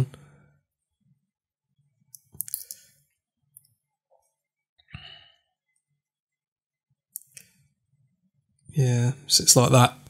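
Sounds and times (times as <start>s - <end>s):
small parts clicking and scraping: 2.1s - 3.0s.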